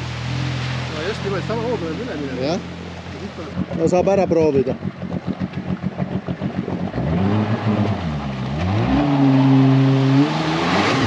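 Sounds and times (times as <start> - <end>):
water spray: 0.0 - 4.2
jet ski engine revving: 0.0 - 11.0.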